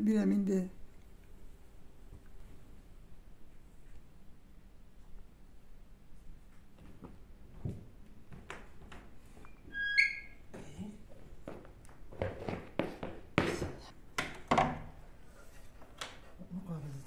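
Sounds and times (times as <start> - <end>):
footsteps on wooden floorboards: 6.6 - 9.5, 10.5 - 13.9
short high squeak: 9.7 - 10.4
wooden door knocks and thuds: 14.2 - 15.0.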